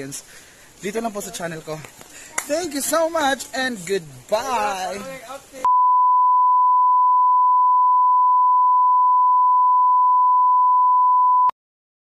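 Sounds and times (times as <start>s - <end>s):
steady test tone beep: 5.7s - 11.5s.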